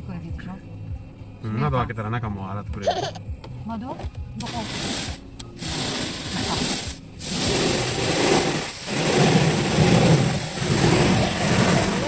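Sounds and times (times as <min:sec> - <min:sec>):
car wash machinery rumbling: 0:04.4 - 0:12.0
water spraying on car: 0:04.4 - 0:12.0.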